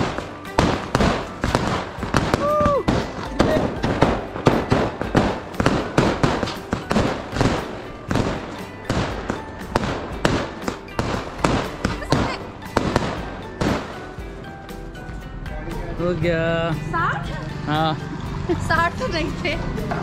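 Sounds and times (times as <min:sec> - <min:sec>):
fireworks bursting with sharp bangs: 0:00.0 - 0:14.3.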